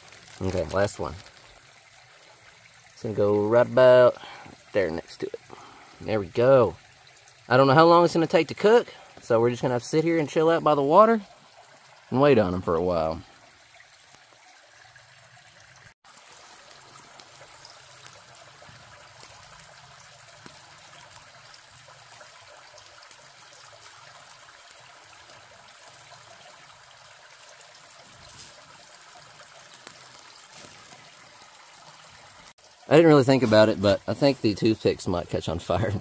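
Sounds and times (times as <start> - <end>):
creek trickling: 0.0 - 36.0.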